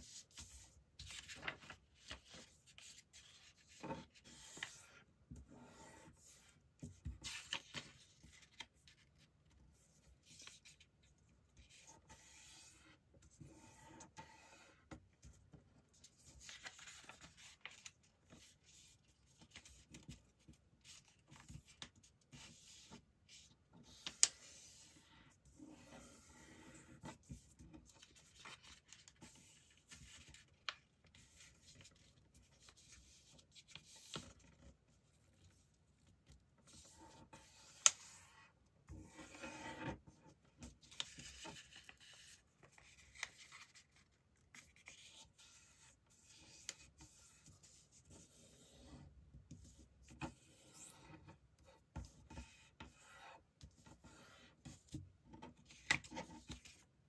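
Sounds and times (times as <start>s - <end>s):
paper rustling while folded: 0.1s - 5.0s, 7.1s - 11.0s, 15.9s - 23.0s, 40.6s - 48.2s.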